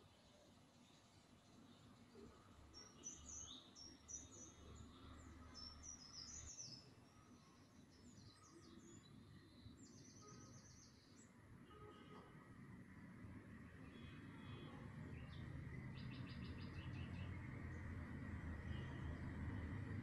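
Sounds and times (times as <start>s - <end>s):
faint bird chirping: 0.0s - 13.0s, 13.6s - 20.0s.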